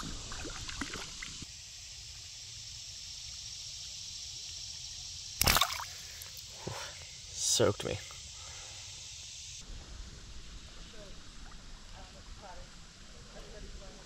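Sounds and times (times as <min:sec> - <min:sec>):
water dripping and sloshing: 0:00.0 - 0:01.5, 0:05.4 - 0:06.3
fish splashing into water: 0:05.4 - 0:06.1.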